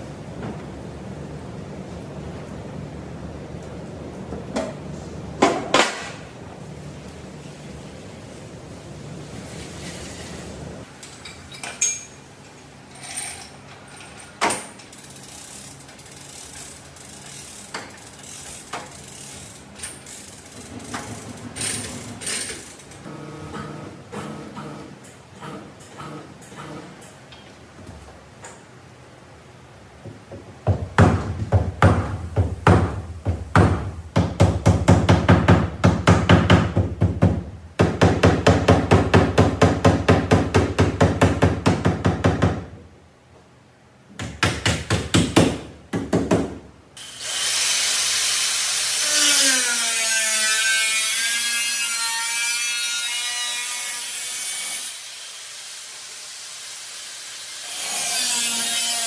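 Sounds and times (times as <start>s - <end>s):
angle grinder cutting steel: 47.0s - 59.0s
sharp strokes on metal bodywork: 47.0s - 59.0s.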